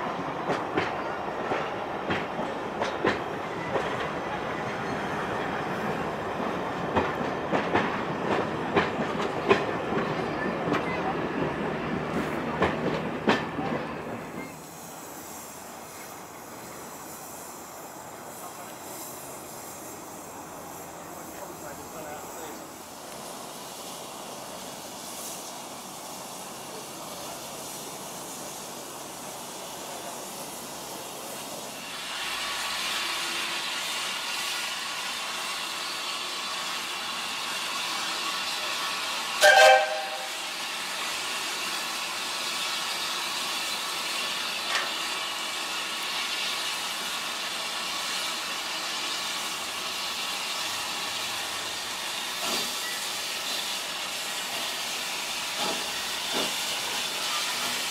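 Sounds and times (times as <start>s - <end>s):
steam hissing: 0.0s - 57.9s
steam locomotive whistle blast: 39.4s - 40.6s.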